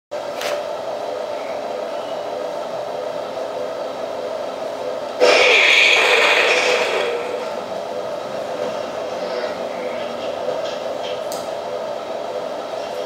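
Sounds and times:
hissing sound effect: 5.2s - 7.6s.

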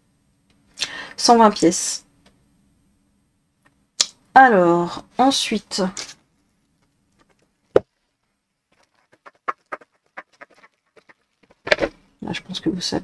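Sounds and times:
plastic mailer crinkling: 8.8s - 12.0s.

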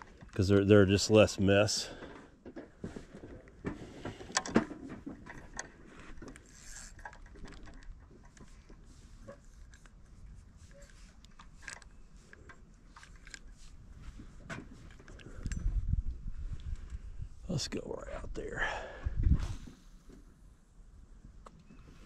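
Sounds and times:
fishing tackle clicking and rattling: 4.1s - 8.8s, 10.8s - 13.7s.

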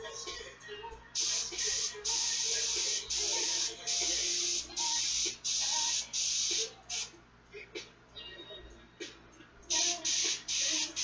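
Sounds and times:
airbrush hissing: 1.2s - 7.1s, 9.7s - 11.0s.

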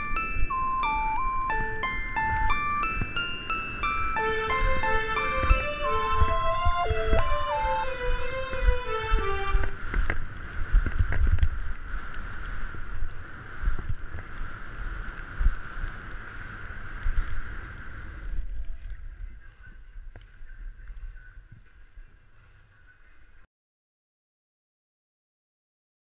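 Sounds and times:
closing tune: 0.0s - 9.8s.

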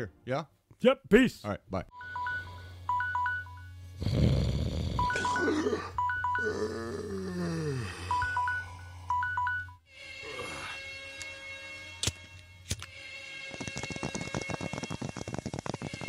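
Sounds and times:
short electronic beeps: 2.0s - 3.8s, 5.0s - 6.5s.

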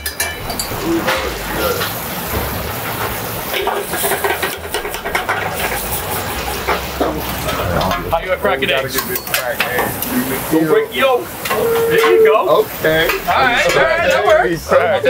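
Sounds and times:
metal spoon clinking in pan: 0.0s - 0.8s.

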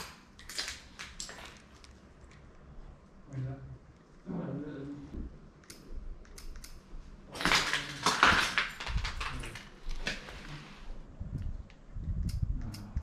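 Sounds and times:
debris crunching and clinking: 7.4s - 10.2s.

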